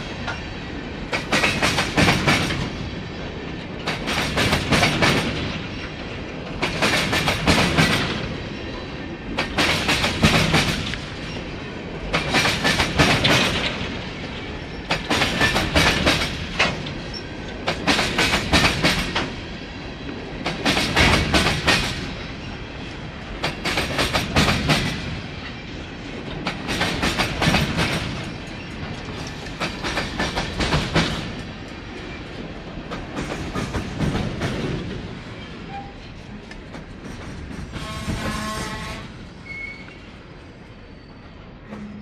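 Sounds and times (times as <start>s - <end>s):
train wheels clicking over rail joints: 0.0s - 38.9s
high squeal of steel: 35.4s - 36.1s, 37.8s - 42.0s.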